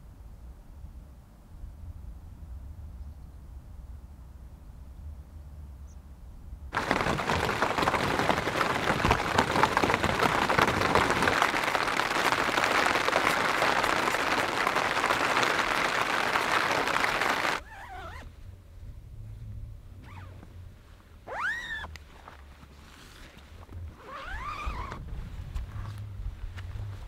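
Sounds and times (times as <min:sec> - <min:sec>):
rain on tent fabric: 0:06.7 - 0:18.2, 0:23.9 - 0:25.0.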